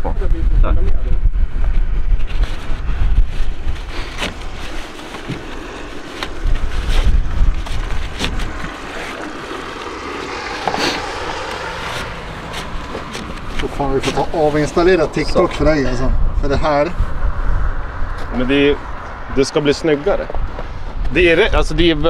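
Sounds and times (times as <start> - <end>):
wind buffeting microphone: 0.0 - 22.0
strap rustling and scraping: 2.1 - 15.3.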